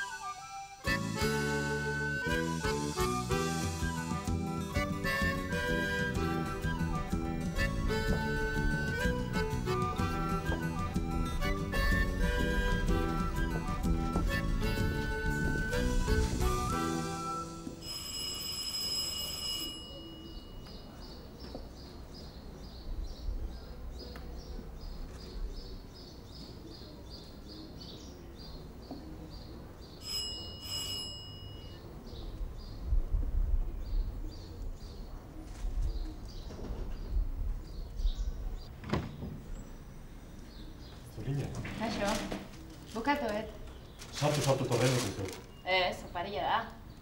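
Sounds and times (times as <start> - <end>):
small birds chirping: 20.0 - 30.0, 33.6 - 47.0.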